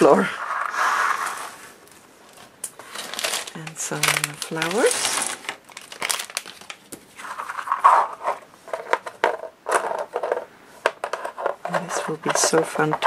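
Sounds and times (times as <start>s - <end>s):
packaging crinkling: 1.8s - 10.4s.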